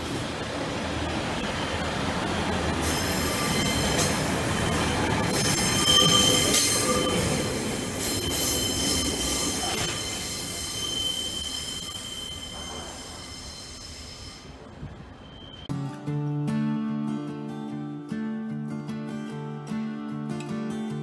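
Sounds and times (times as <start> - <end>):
train rumbling: 0.0 - 15.7
train wheels squealing: 2.8 - 15.7.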